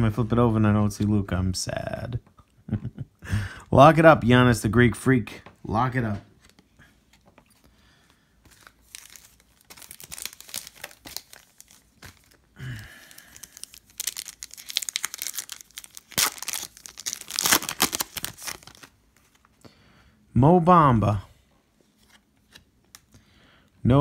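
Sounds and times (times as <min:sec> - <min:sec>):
foil wrapper crinkling: 0:08.5 - 0:19.4
foil wrapper ripping: 0:08.8 - 0:12.4, 0:13.0 - 0:18.9.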